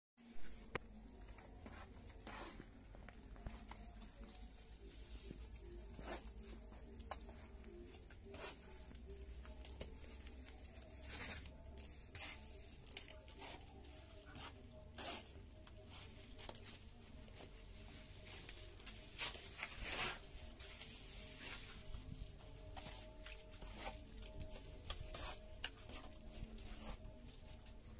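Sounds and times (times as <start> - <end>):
trowel scraping mortar: 14.3 - 15.4, 19.2 - 20.4.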